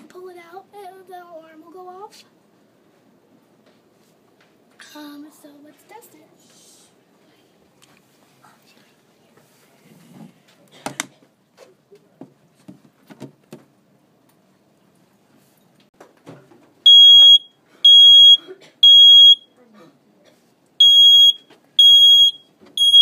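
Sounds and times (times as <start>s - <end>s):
high-pitched smoke alarm beeps: 16.9s - 19.5s, 20.8s - 23.0s.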